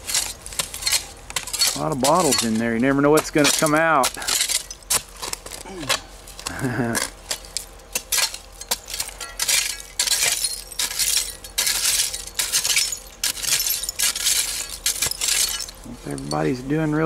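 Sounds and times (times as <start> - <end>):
glassy clinks and crunches: 0.0 - 2.8, 3.4 - 5.6, 6.3 - 16.7
pick striking dirt and glass: 0.0 - 16.8.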